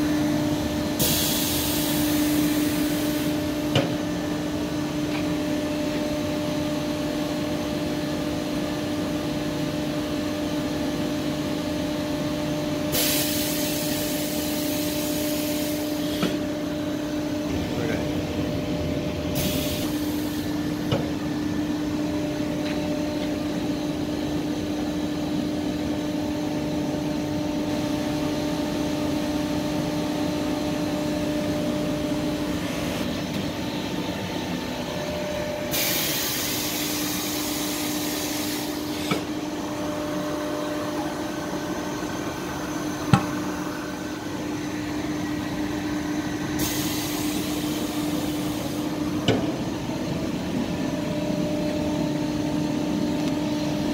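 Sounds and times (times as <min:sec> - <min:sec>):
mixer machine hum: 0:00.0 - 0:53.9
hiss: 0:01.0 - 0:03.0, 0:12.9 - 0:16.1, 0:35.7 - 0:39.1, 0:46.6 - 0:48.8.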